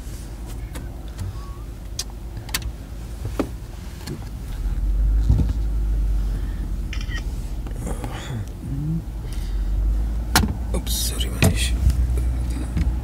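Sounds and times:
car rumbling on dirt track: 0:00.0 - 0:06.9, 0:07.5 - 0:13.0.

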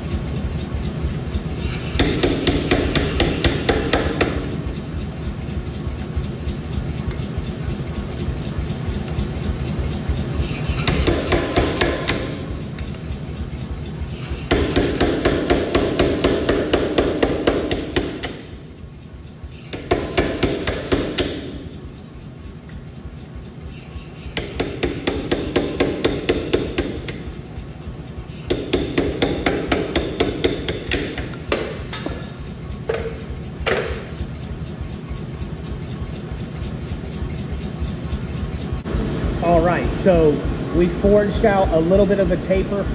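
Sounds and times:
machine running: 0:00.0 - 0:42.9
power hammer pounding hot steel: 0:01.2 - 0:22.0, 0:23.8 - 0:34.4.

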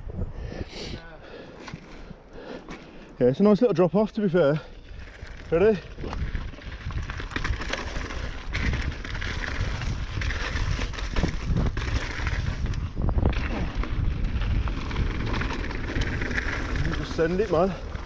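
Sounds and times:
wind on microphone: 0:00.0 - 0:01.0, 0:05.0 - 0:17.0.

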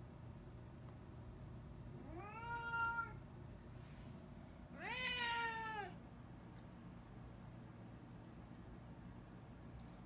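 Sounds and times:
cat meowing: 0:02.0 - 0:03.2, 0:04.8 - 0:06.0.

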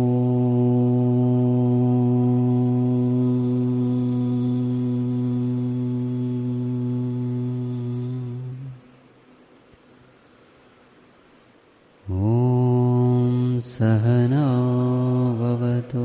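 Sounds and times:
long low held tone: 0:00.0 - 0:09.0.

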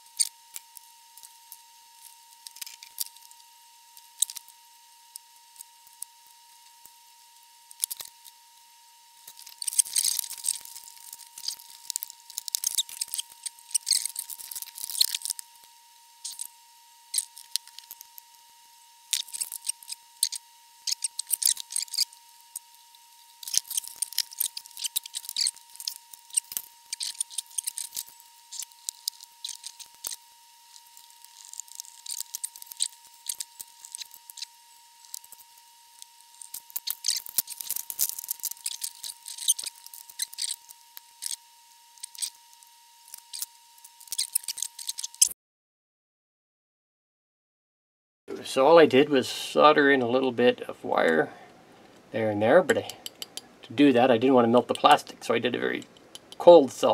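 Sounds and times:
clicks and clatters of small parts: 0:02.0 - 0:03.3, 0:07.7 - 0:08.2, 0:09.3 - 0:15.4, 0:19.1 - 0:22.6, 0:23.4 - 0:41.4, 0:43.1 - 0:45.3, 0:55.8 - 0:56.5.

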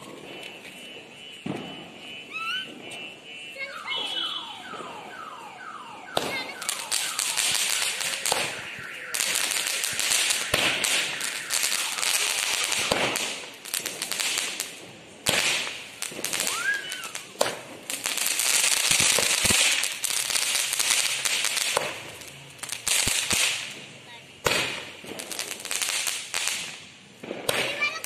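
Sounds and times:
sharp firework pops: 0:00.0 - 0:03.1, 0:06.1 - 0:28.0
firework crackling hiss: 0:06.3 - 0:28.0.

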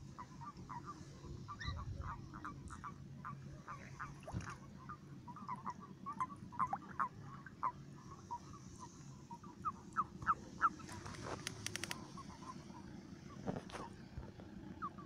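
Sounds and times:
toads croaking: 0:00.2 - 0:14.0
sharp clicks: 0:11.0 - 0:12.0.

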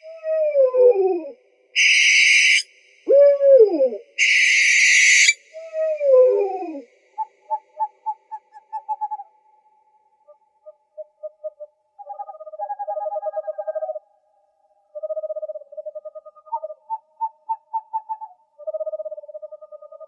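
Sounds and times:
owl hissing screeches: 0:01.8 - 0:02.7, 0:04.2 - 0:05.4
owl calls sliding downward: 0:01.8 - 0:06.8
owl short notes: 0:04.2 - 0:05.4.

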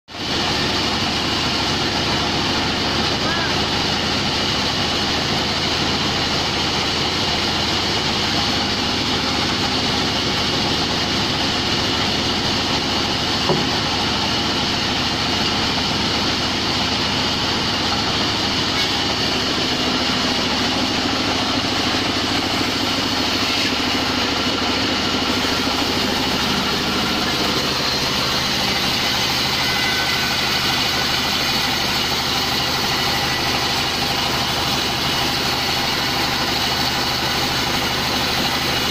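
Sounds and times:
band saw running: 0:00.2 - 0:38.9
sharp knock: 0:13.4 - 0:13.8.

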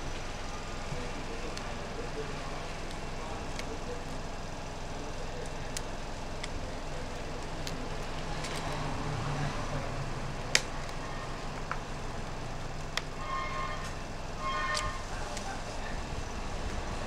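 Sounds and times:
steady background hum: 0:00.0 - 0:17.0
sharp plastic clicks: 0:10.4 - 0:11.9.

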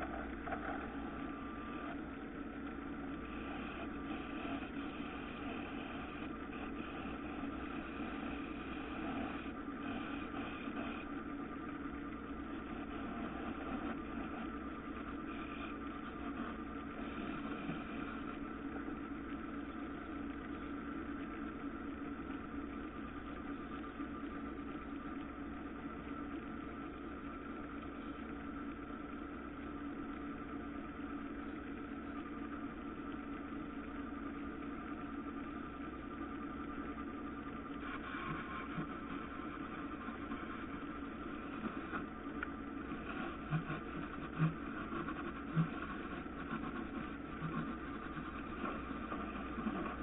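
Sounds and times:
wood lathe motor hum: 0:37.7 - 0:50.0.

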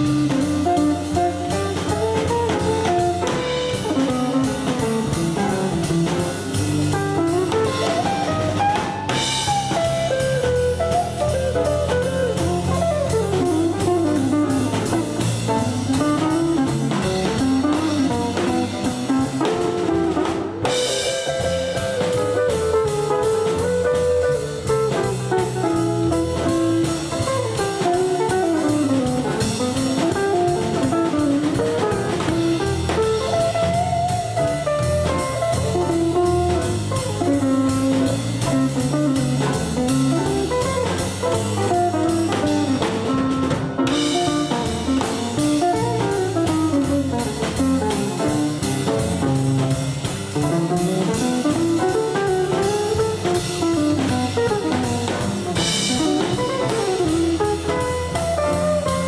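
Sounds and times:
double bass: 0:00.0 - 0:59.0
drum kit: 0:00.0 - 0:59.0.

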